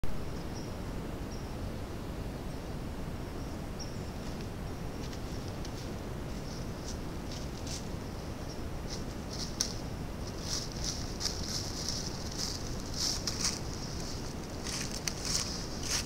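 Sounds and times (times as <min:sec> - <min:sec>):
low rumble and hiss: 0:00.0 - 0:16.0
hooves crunching through dry leaves: 0:05.0 - 0:08.0, 0:08.8 - 0:16.0.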